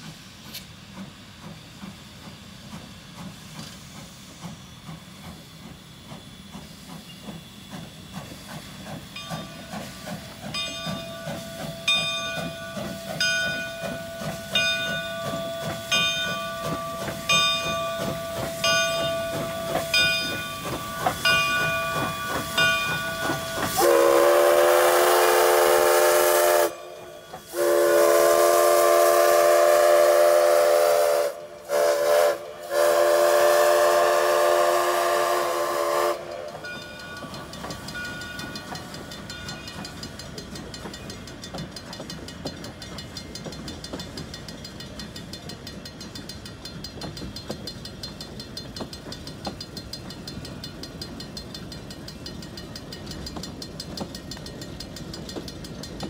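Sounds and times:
hissing chuffing steam: 0.0s - 56.0s
chime steam whistle blowing: 9.0s - 41.4s
locomotive bell ringing: 9.1s - 28.5s, 35.4s - 56.0s.

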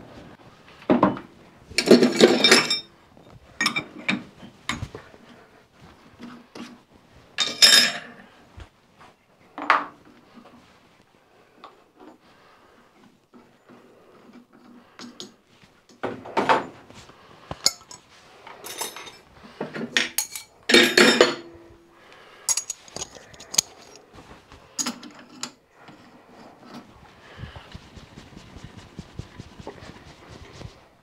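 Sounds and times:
metal clattering clanks: 22.5s - 24.0s
steel tooling clinking: 22.5s - 24.0s.

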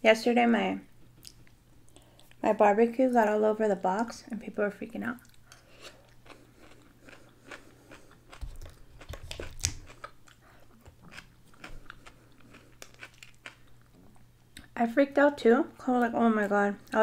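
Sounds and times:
chewing and crunching: 5.2s - 14.8s.

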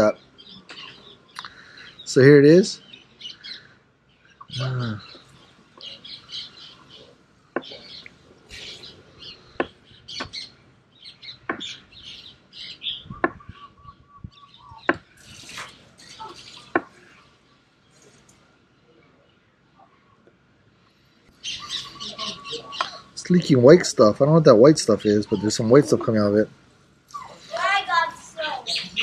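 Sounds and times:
small birds chirping: 0.0s - 29.0s
short low voice: 4.5s - 5.1s.

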